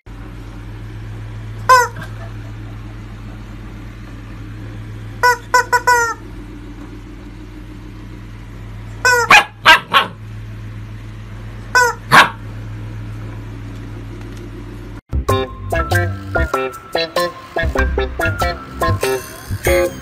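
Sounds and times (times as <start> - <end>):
rubber chicken toy squawking: 1.7 - 2.0, 5.2 - 6.2, 9.0 - 9.5, 11.7 - 12.3
puppy barking: 9.0 - 10.2, 11.7 - 12.5.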